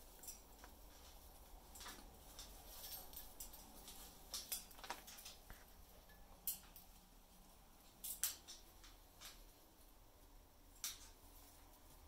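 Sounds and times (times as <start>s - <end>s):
parrot claws clicking on metal cage: 0.2s - 1.1s, 1.7s - 5.5s, 6.1s - 7.0s, 7.8s - 9.4s, 10.8s - 11.2s.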